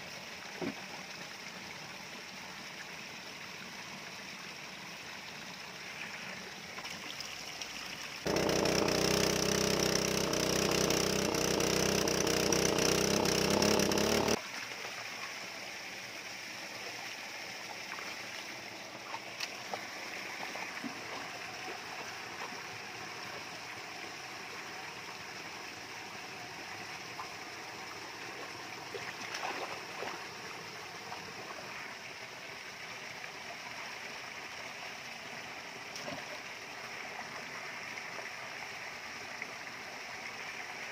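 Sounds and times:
water pouring from pipe: 6.9s - 14.4s.

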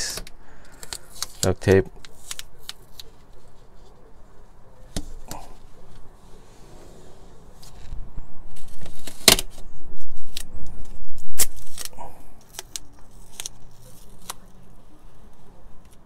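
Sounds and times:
duct tape ripping: 7.6s - 15.0s.

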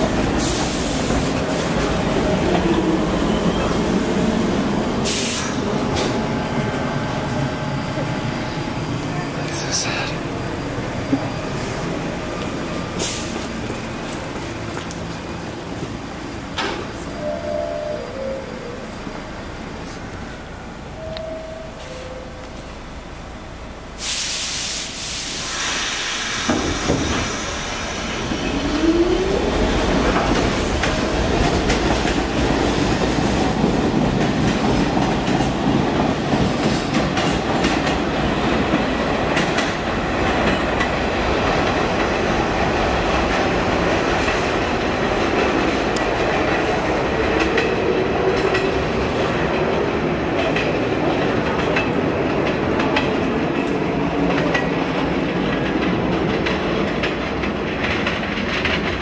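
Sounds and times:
train rumble: 0.0s - 59.0s
burst of air hiss: 5.0s - 5.6s, 24.0s - 27.8s
train wheels clattering over rail joints: 49.6s - 59.0s.

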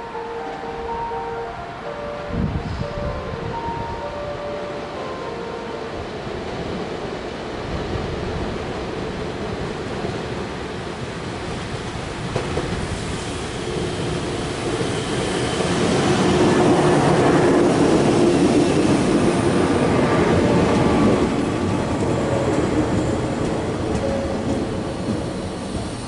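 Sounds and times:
train wheels rumbling on rails: 5.9s - 26.0s.

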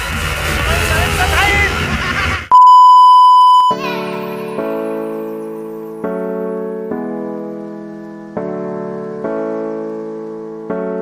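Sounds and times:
sustained keyboard chords: 3.4s - 11.0s.

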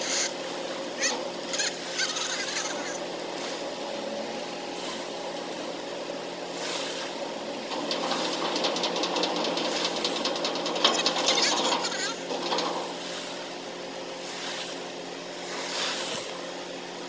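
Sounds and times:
ship machinery humming: 0.0s - 15.4s
fine rapid rattling: 7.6s - 13.0s.

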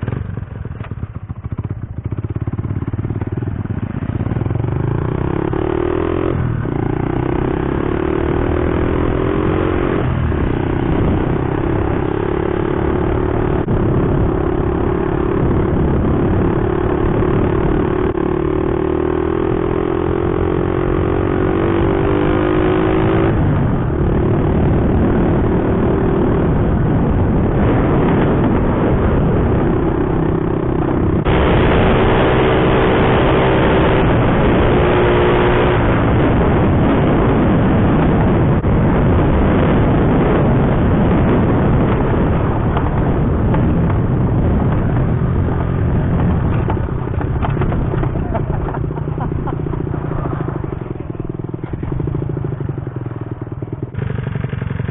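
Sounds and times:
mini bike engine running: 0.0s - 27.6s, 39.8s - 54.9s
gravel road noise: 0.0s - 54.9s
wind rush: 4.4s - 54.9s.

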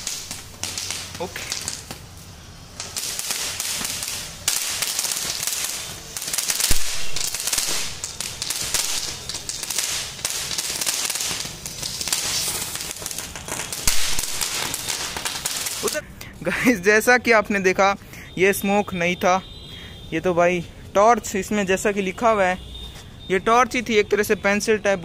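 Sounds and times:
sharp crack: 0.0s - 16.3s
firework torch hissing: 0.0s - 16.7s.

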